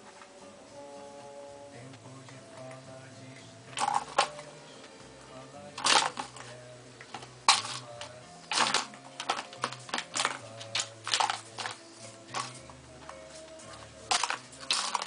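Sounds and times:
ball clattering in plastic track: 7.1 - 12.6, 14.0 - 15.0.

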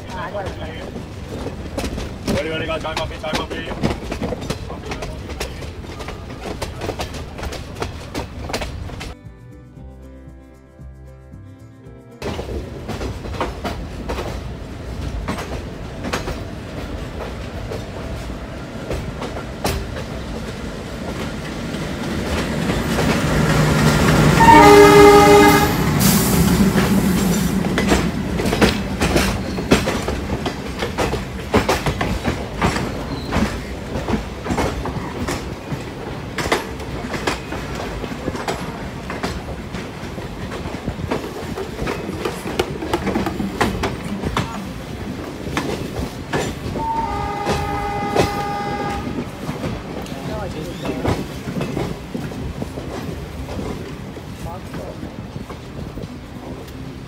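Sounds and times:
train wheels clickety-clack: 0.0 - 9.2, 12.2 - 57.0
locomotive rumbling past: 0.0 - 11.0, 11.7 - 57.0
locomotive horn: 23.7 - 27.1, 46.8 - 49.7.

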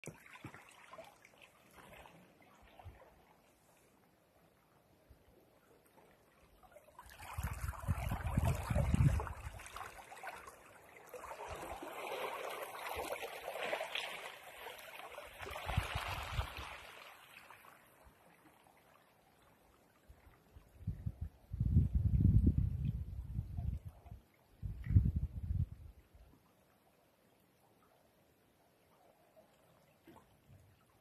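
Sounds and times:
waves washing over rocks and pebbles: 11.1 - 17.5.

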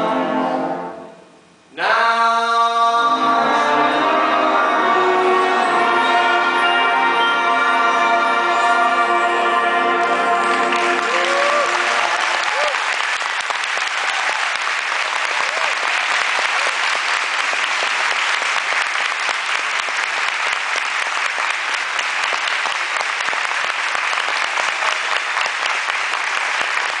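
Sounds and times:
audience applause: 10.0 - 27.0.

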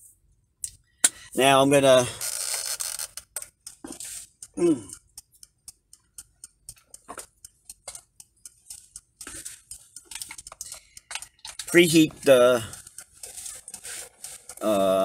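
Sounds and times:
short vocal grunt: 4.6 - 4.9
objects clicking and knocking: 8.7 - 14.6.

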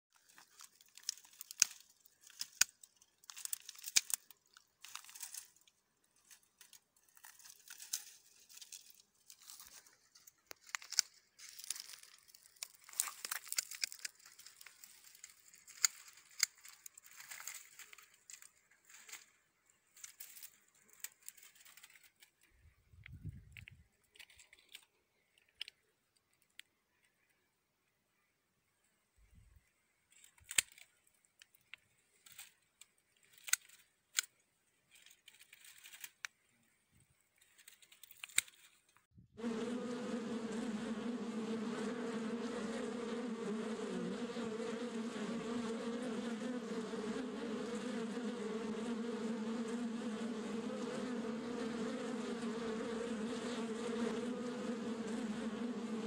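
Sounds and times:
dry twigs crackling and snapping: 0.2 - 22.6, 23.6 - 26.7, 30.1 - 36.5, 37.4 - 39.0.

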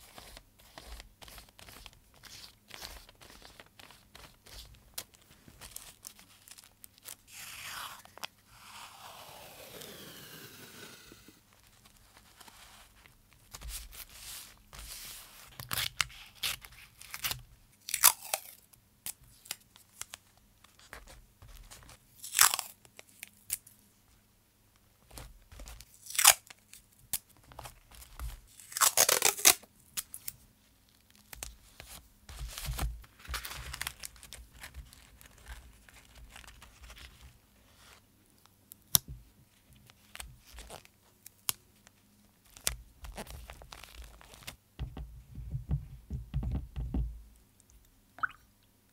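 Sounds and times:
paper crinkling: 0.0 - 7.2, 32.3 - 37.4, 42.4 - 44.6
tape peeling and tearing: 28.6 - 30.3.

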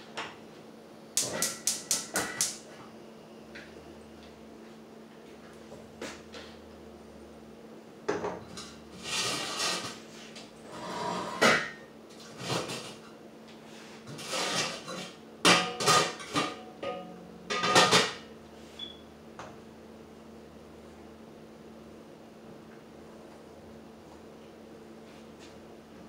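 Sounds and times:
wooden spoon scraping metal pot: 9.0 - 10.0.

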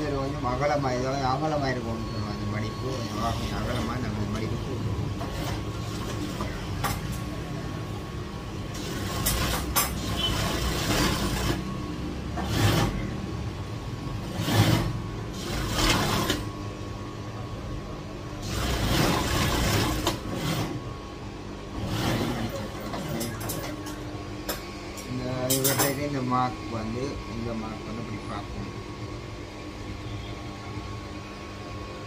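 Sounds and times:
motor hum: 0.0 - 25.4
sewing machine stitching: 8.7 - 11.7, 12.4 - 13.2, 14.2 - 16.5, 18.4 - 20.8, 21.8 - 23.8.

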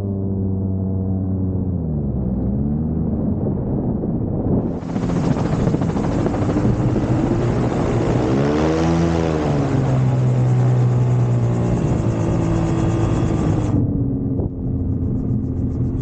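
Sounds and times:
gyroplane engine running: 4.6 - 16.0.

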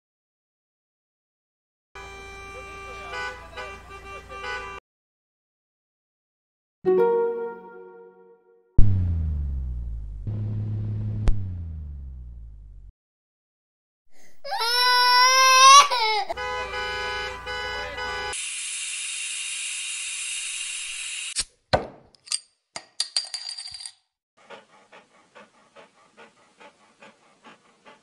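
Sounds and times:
held tone over low rumble: 8.8 - 12.9
toddler crying: 14.4 - 16.4
dog panting: 24.4 - 28.0.

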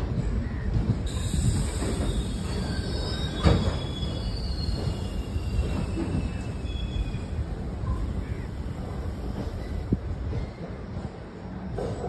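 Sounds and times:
train wheels rumbling on rails: 0.0 - 12.0
faint high wheel squeal: 1.1 - 8.3.

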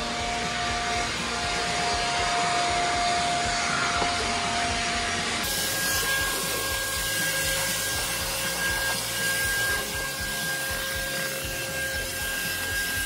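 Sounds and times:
electric blower motor whine: 0.0 - 13.0.

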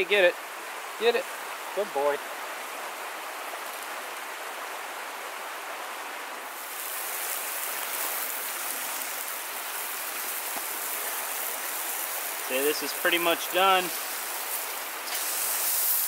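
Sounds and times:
meat sizzling over fire: 2.6 - 4.7, 6.5 - 16.0.

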